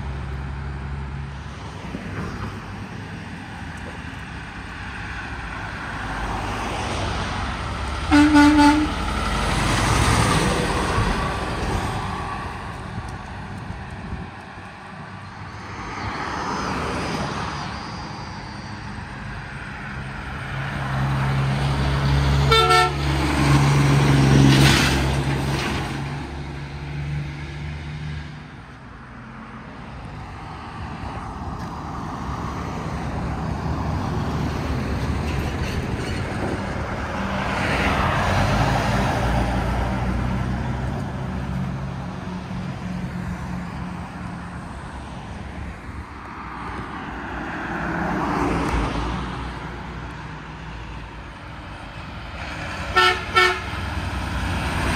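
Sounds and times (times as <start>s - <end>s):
diesel truck engines passing: 0.0s - 54.9s
truck horn toot: 8.0s - 9.1s, 22.4s - 23.1s, 52.9s - 53.8s.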